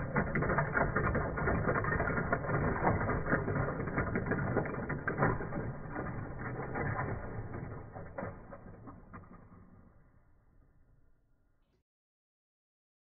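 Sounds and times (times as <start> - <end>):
plastic figures clattering onto floor: 0.0 - 10.1.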